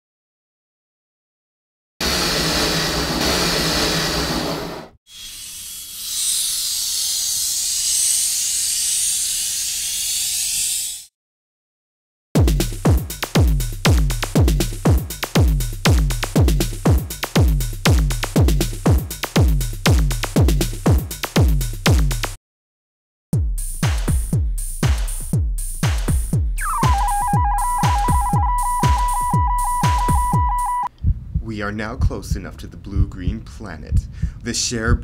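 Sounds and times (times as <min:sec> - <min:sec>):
heavy kick drum: 0:12.4 - 0:22.2, 0:23.4 - 0:31.5
electronic dance music: 0:26.6 - 0:30.9.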